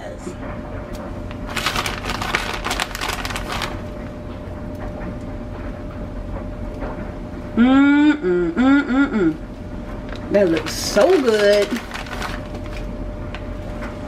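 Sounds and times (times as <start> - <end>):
plastic bag rustling: 1.3 - 4.0, 10.0 - 13.8
faint steady hum: 7.5 - 13.9.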